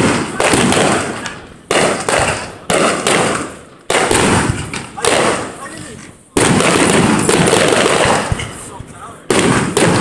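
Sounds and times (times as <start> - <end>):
echo of firework bangs: 0.0 - 10.0
firework shells bursting: 0.0 - 10.0.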